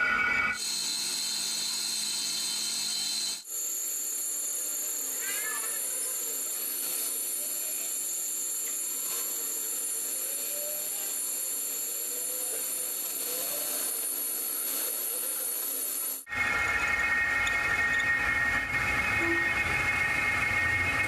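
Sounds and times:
metal lathe hissing and whining: 0:00.1 - 0:21.0
loud steady noise: 0:06.0 - 0:21.0.

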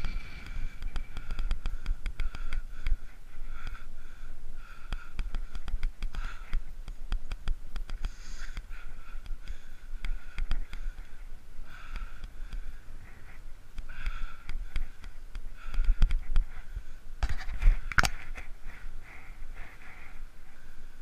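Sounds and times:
low rumble: 0:00.0 - 0:03.6.

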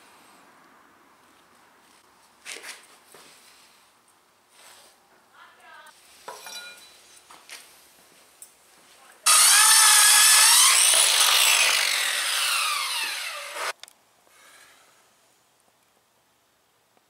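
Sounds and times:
circular saw cutting wood: 0:09.3 - 0:13.7.

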